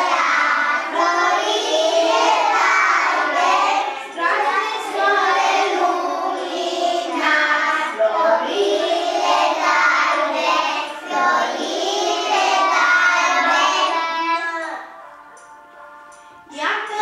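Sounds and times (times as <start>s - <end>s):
children singing a carol: 0.0s - 15.2s.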